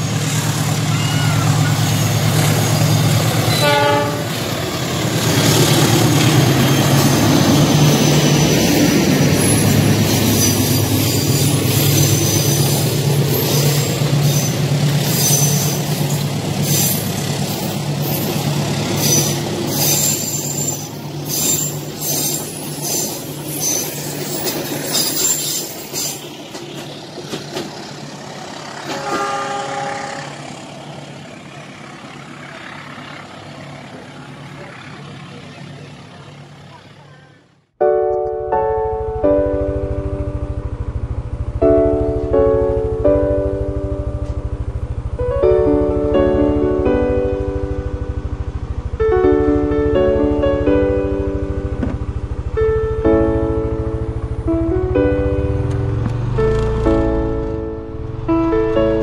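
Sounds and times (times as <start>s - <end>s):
train engine droning: 0.0s - 37.7s, 38.6s - 59.0s
train horn: 3.4s - 4.5s, 28.8s - 30.4s
train wheels clattering: 4.4s - 29.6s.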